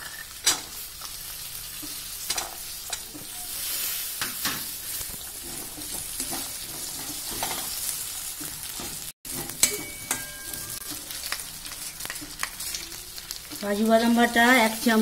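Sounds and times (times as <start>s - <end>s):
peas sizzling in oil: 0.0s - 15.0s
metal spatula scraping pan: 5.4s - 7.9s.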